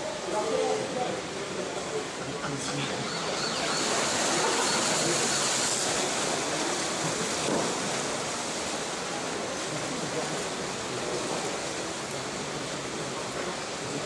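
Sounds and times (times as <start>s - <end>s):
swimmers splashing in pool: 2.8s - 11.6s.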